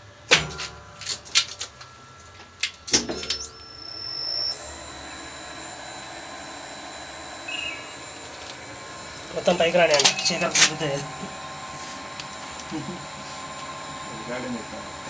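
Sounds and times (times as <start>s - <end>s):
elevator machine humming and whining: 0.0s - 15.0s.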